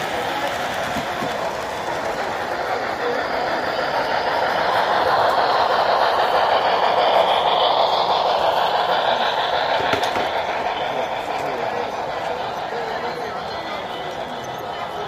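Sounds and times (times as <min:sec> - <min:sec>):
model train rolling on track: 0:00.0 - 0:15.0.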